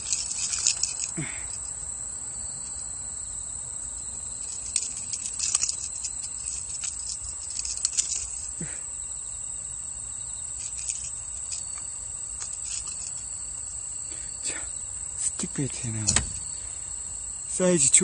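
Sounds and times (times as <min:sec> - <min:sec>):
handling clicks and rustles: 0:00.0 - 0:01.8, 0:04.4 - 0:08.6, 0:10.5 - 0:13.8, 0:15.2 - 0:16.6
night insects chorus: 0:00.0 - 0:18.0.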